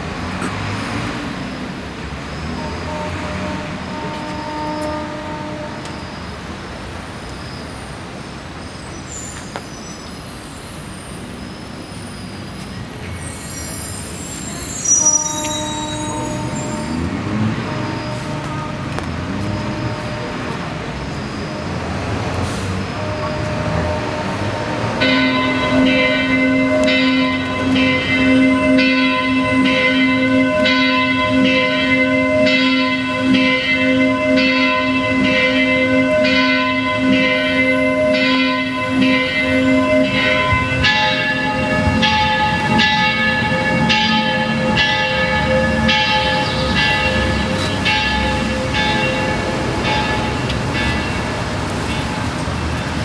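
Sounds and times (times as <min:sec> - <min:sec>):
pulsing bell-like tones: 0:13.4 - 0:17.1, 0:23.0 - 0:52.2.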